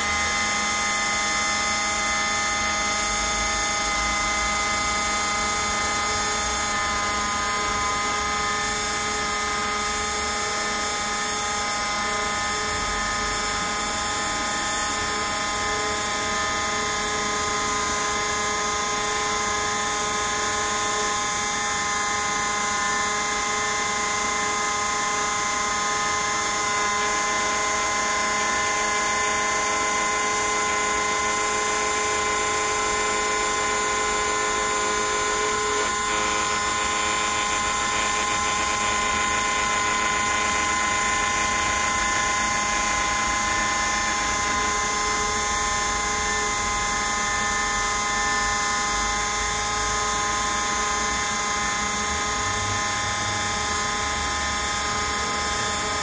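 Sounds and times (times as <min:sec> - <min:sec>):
router spindle whining: 0:00.0 - 0:56.0.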